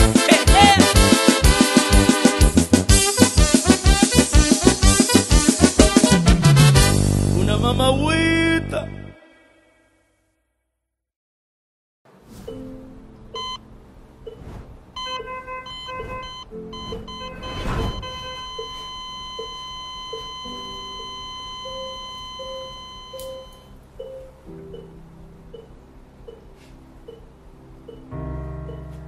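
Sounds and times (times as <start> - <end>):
heart monitor beeping: 13.4 - 13.6, 15.0 - 24.9
flatline tone: 14.3 - 24.9
soft music notes: 21.8 - 29.0.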